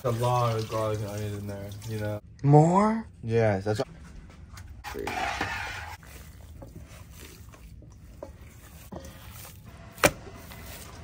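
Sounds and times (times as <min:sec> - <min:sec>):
hands kneading raw meat: 0:05.2 - 0:11.0.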